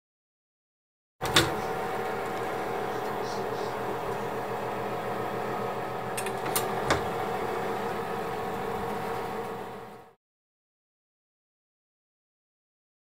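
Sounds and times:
oven fan humming: 1.2 - 10.2.

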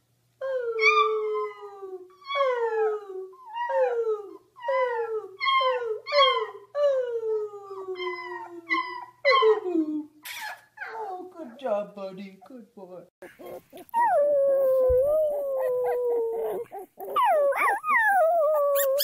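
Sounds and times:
puppy howling: 13.2 - 19.0.

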